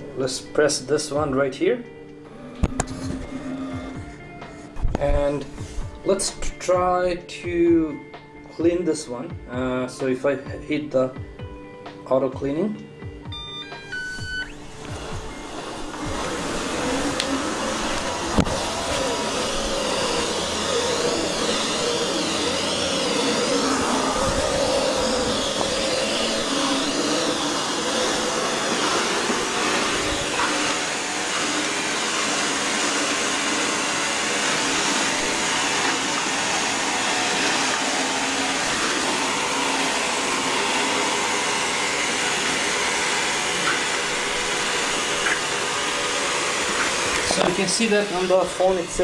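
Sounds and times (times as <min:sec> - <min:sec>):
robot vacuum whirring: 0:02.3 - 0:04.2, 0:13.3 - 0:49.0.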